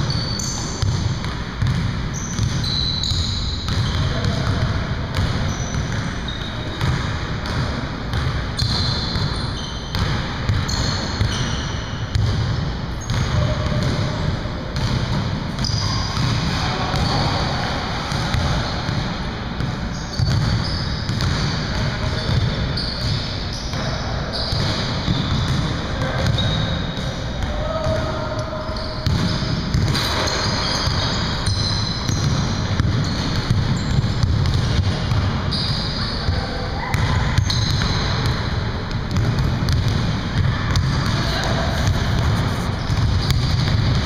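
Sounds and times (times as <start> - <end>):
sneaker squeaks: 0.0 - 44.0
basketball bouncing on wooden floor: 0.4 - 6.0, 6.8 - 14.1, 19.6 - 23.8, 29.0 - 35.4, 39.1 - 44.0
players' voices: 23.4 - 30.2, 40.4 - 43.3.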